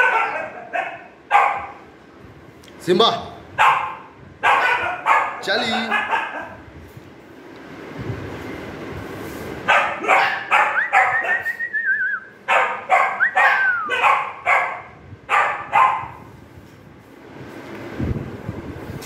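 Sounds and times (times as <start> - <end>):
dog barking: 0.0 - 1.8, 3.6 - 6.6, 9.7 - 11.5, 12.5 - 16.3.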